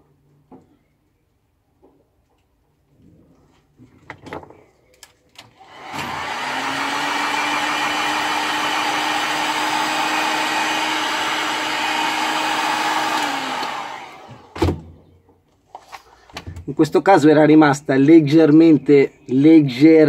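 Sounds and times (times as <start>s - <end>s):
heat gun blowing air: 5.6s - 14.6s.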